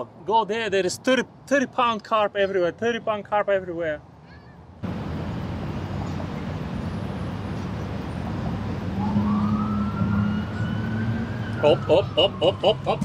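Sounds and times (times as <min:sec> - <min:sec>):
road traffic on a bridge: 0:00.0 - 0:13.0
siren rising in pitch: 0:08.9 - 0:13.0.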